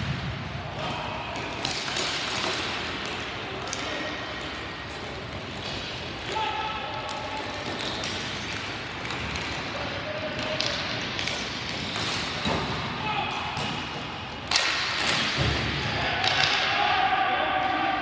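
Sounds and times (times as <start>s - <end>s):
players shouting: 15.8s - 18.0s.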